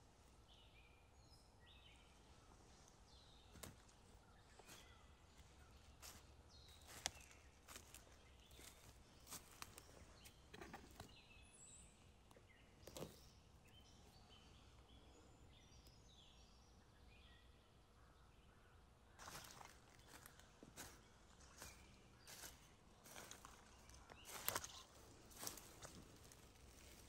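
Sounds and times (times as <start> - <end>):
birds chirping: 0.0 - 27.0
footsteps crunching through dry leaves: 5.9 - 10.0, 19.2 - 27.0.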